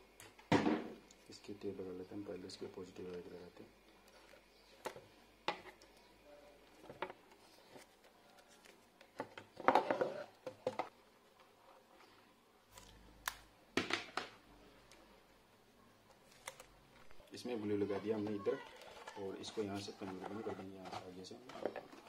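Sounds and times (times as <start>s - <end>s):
tape clicks and crinkles: 16.0s - 17.2s.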